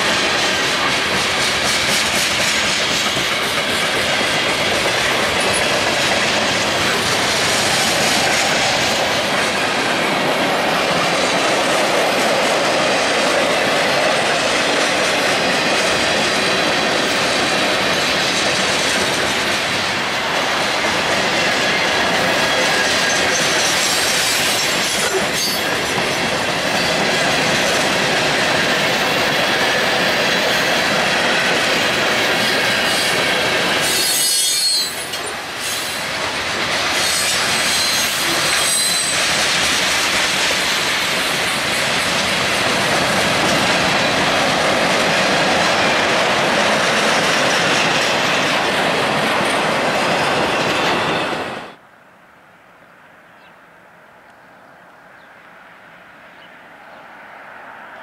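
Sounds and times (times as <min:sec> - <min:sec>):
train wheels on rails: 0:00.0 - 0:51.8.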